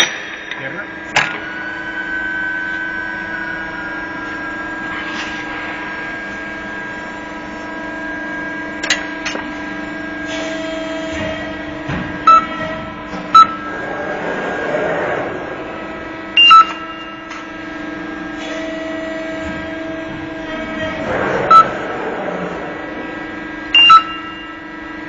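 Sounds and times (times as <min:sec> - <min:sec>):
machine humming: 0:00.0 - 0:25.0
short loud beeps: 0:16.4 - 0:17.2.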